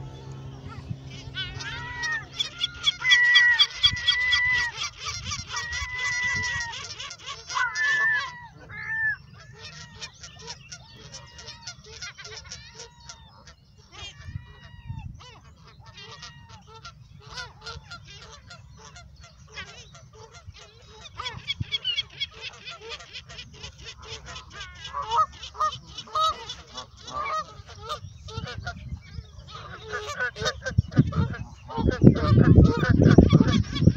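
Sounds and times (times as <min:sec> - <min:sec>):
geese honking: 0:00.0 - 0:33.9.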